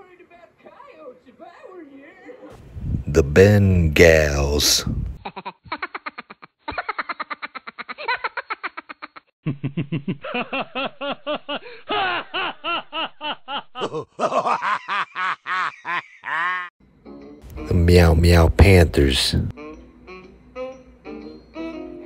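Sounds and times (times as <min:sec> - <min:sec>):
high-pitched laughter: 0:05.2 - 0:16.7.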